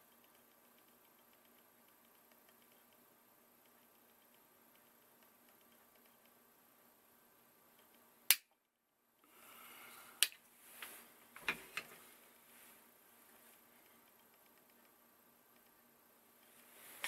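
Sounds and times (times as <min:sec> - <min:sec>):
magnet discs clicking: 0:00.0 - 0:06.4, 0:07.7 - 0:08.6.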